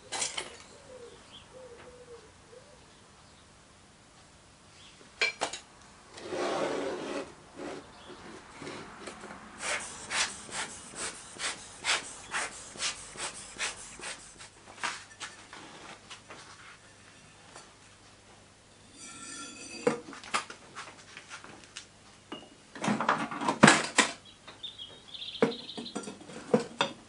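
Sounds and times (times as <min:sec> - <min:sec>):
wooden flask rubbing scrape: 0:09.6 - 0:14.5.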